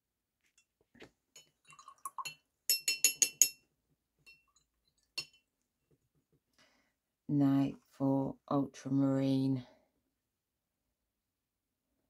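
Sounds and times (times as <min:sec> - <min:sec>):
brush rinsing in water: 0:01.0 - 0:02.4
paintbrush clinking glass jar: 0:01.3 - 0:05.5.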